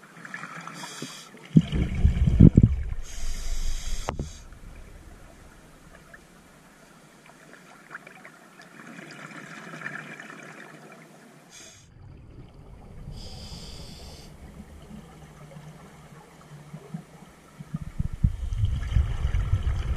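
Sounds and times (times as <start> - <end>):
breath hissing through regulator: 0.8 - 1.3, 2.9 - 5.8, 11.5 - 11.9, 13.1 - 14.5
exhaled bubbles fizzing: 1.4 - 6.7, 11.9 - 19.9
low bubbling: 1.5 - 6.7, 11.9 - 19.9.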